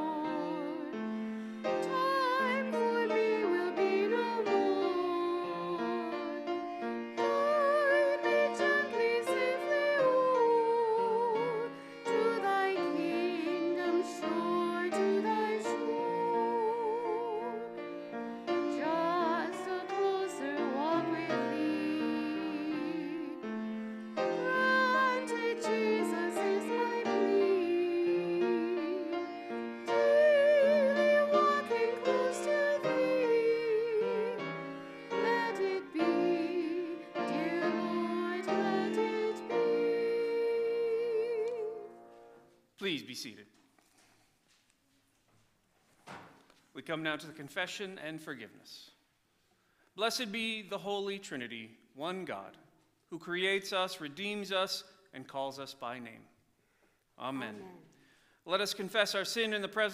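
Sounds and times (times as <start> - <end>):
person singing hymn: 0.0 - 42.4.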